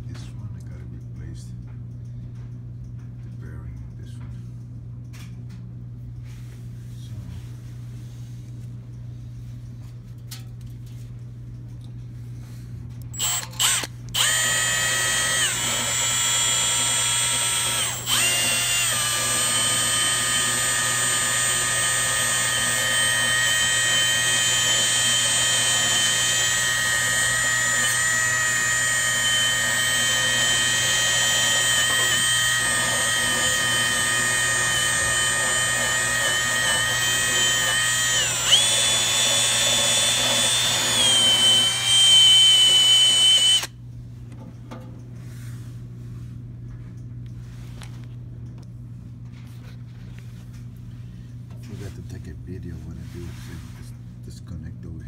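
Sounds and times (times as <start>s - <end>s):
power drill whining: 13.1s - 43.8s
wire wheel brushing shaft: 13.2s - 43.7s.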